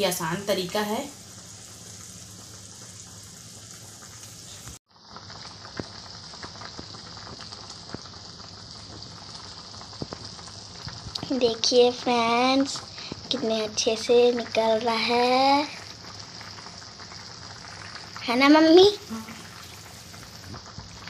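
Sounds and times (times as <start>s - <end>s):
curry bubbling in a pan: 0.0s - 21.0s
small pops and ticks: 4.6s - 8.2s, 8.8s - 11.3s.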